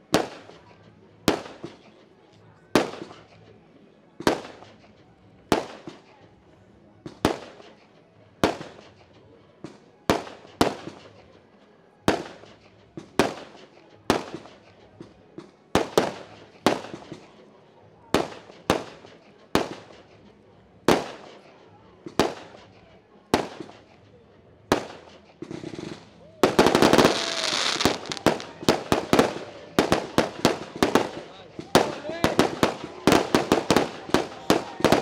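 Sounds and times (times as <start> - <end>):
firework bangs echoing: 9.7 - 11.2, 12.1 - 17.4, 18.1 - 20.2, 20.9 - 24.0, 24.7 - 35.0.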